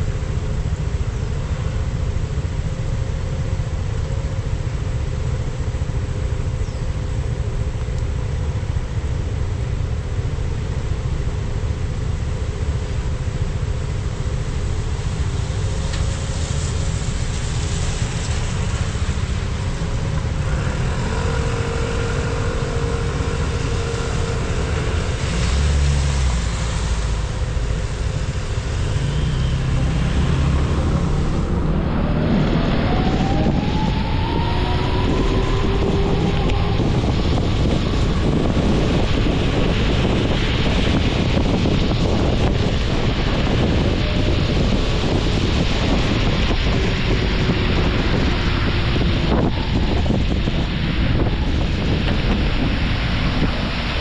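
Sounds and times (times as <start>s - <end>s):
high road hiss: 0.0s - 54.0s
low rumble of engine and tyres: 0.0s - 54.0s.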